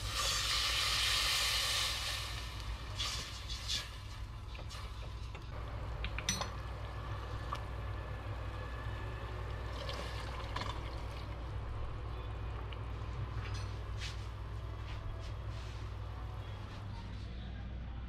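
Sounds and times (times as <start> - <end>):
sauce bubbling in a pot: 0.0 - 11.6
steady low hum: 5.2 - 18.0.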